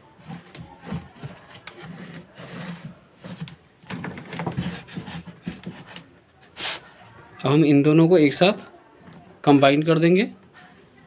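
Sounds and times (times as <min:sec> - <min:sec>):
wires and plastic connectors rubbing: 0:00.1 - 0:06.1.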